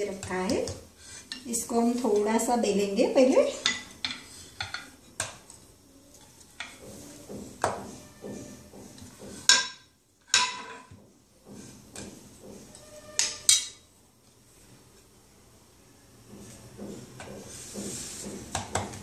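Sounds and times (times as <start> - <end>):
rolling pin knocking on board: 6.7 - 9.5.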